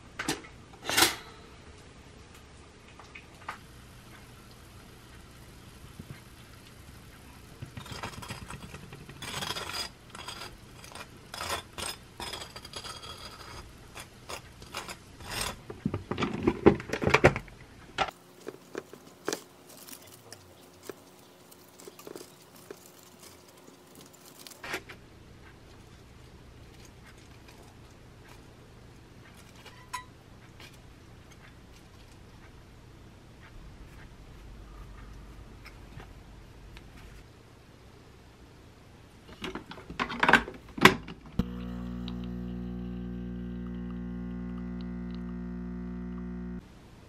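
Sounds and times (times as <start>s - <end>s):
knife scraping over bagel: 7.8s - 15.7s
lettuce leaves rustling: 18.1s - 24.9s.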